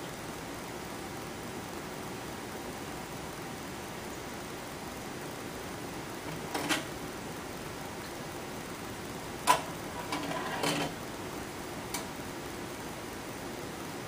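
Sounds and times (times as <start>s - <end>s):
clattering rattle: 9.5s - 11.0s.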